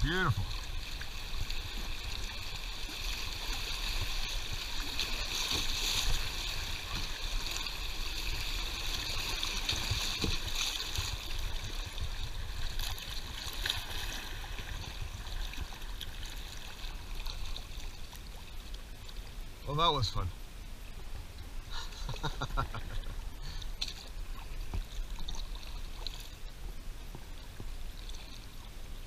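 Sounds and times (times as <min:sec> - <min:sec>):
creek water rushing and splashing: 0:00.0 - 0:29.0.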